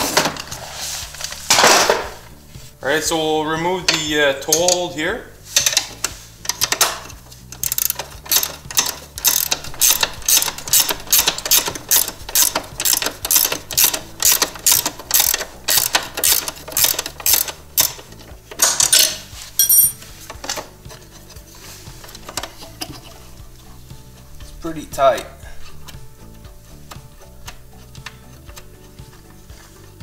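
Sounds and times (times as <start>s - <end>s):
ratcheting wrench clicking: 5.6s - 20.0s.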